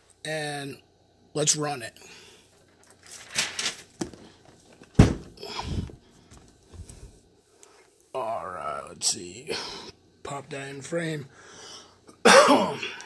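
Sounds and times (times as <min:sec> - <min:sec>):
cardboard box thump: 0:05.0 - 0:05.4.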